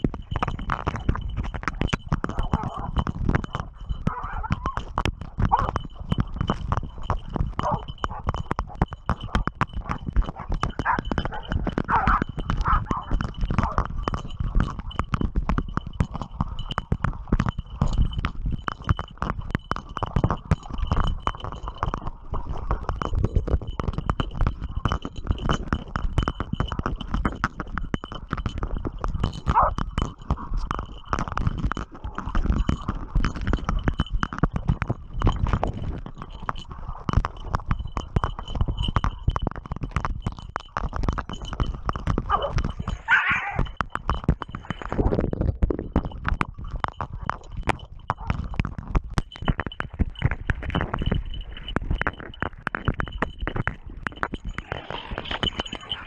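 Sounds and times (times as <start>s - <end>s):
animal cry: 42.3s - 43.7s
splashing in muddy water: 54.6s - 56.0s.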